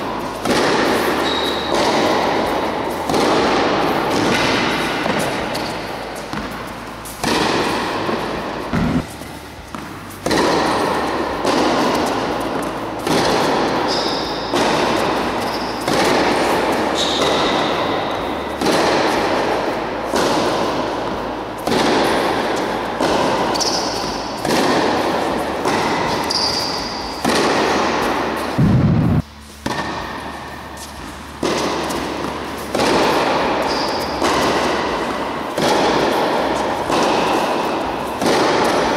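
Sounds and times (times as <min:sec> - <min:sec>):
racquets hitting tennis ball: 0:00.0 - 0:38.9
shoes squeaking on court: 0:00.3 - 0:03.0, 0:03.8 - 0:19.2, 0:23.4 - 0:24.4, 0:25.4 - 0:27.2, 0:30.7 - 0:35.1.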